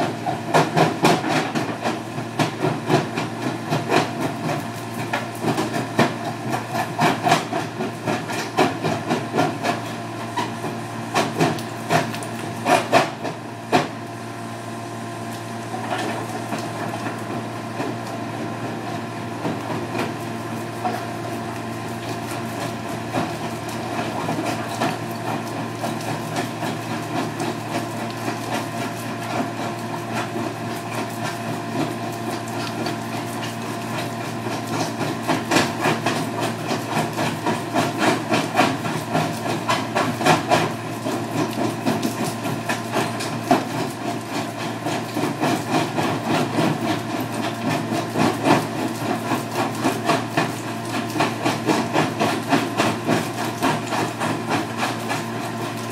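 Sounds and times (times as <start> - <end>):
diesel engine running: 0.0 - 55.9.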